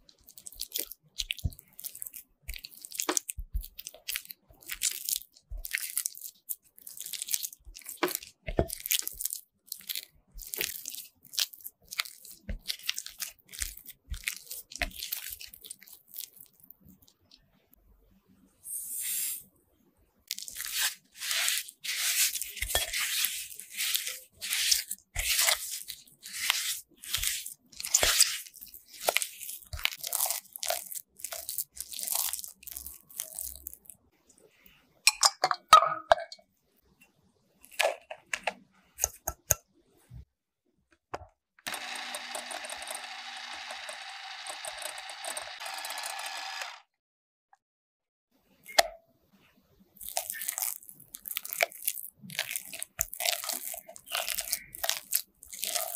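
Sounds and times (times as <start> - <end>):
spatula scraping glass bowl: 20.5 - 29.4
electric hand mixer running: 41.7 - 46.9.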